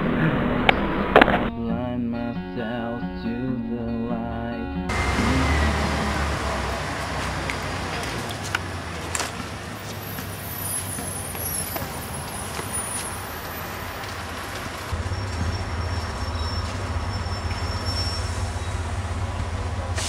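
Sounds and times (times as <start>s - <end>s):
deep engine hum: 0.0s - 10.6s, 14.9s - 20.0s
traffic rumble: 4.9s - 20.0s.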